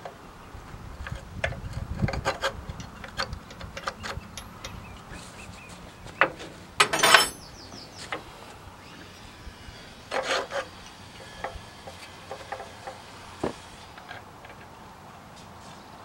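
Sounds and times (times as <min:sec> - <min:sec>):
metal parts scraping and rubbing: 0:01.1 - 0:07.5, 0:10.1 - 0:13.0.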